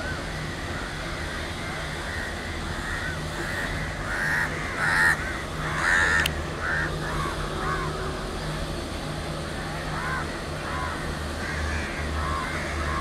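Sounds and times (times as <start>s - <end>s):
crows cawing: 0.1s - 8.0s, 9.9s - 13.0s.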